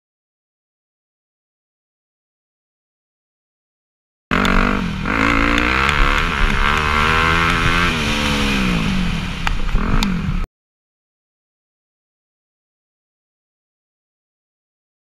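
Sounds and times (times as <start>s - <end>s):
dirt bike engine revving: 4.3s - 10.5s
sharp ticks: 4.4s - 4.6s, 5.4s - 7.8s.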